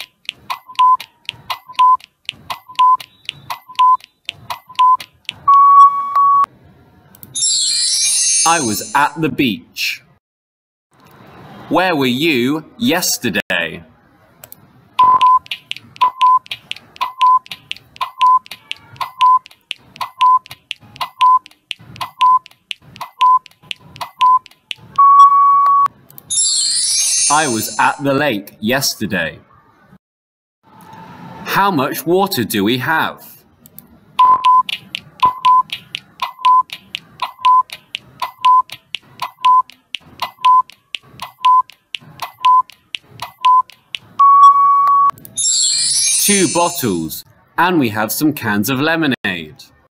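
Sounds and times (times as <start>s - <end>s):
quick timer clicks: 0.0s - 5.6s, 15.0s - 25.1s, 34.2s - 45.3s
short beeps: 4.7s - 6.5s, 15.0s - 15.4s, 25.0s - 25.9s, 34.2s - 35.7s, 43.4s - 45.2s
long steady beep: 4.8s - 6.5s, 25.0s - 25.9s, 43.4s - 45.1s.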